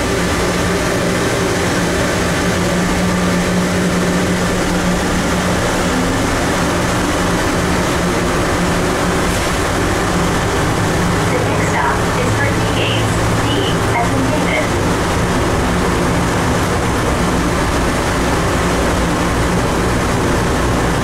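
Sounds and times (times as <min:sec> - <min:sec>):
drone of tyres and running gear: 0:00.0 - 0:14.0
steady low hum: 0:00.0 - 0:21.0.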